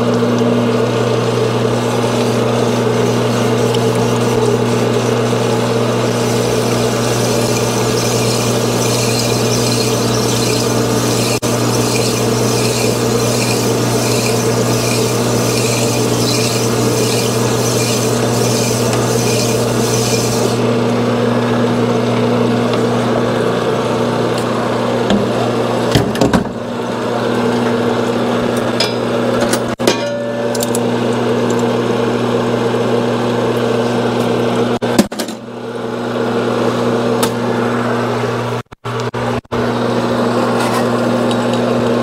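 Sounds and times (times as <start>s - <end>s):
honing machine motor hum: 1.2s - 20.6s
gritty rasp of honing: 1.7s - 20.6s.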